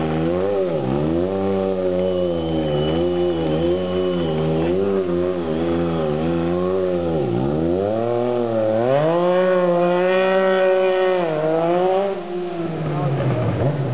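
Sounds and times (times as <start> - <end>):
motorcycle engine revving: 0.0 - 13.9.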